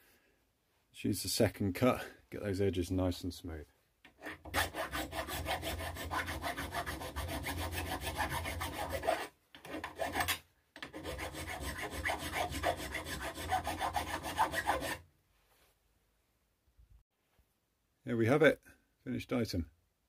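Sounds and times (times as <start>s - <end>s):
file rasping on metal: 4.1s - 15.0s.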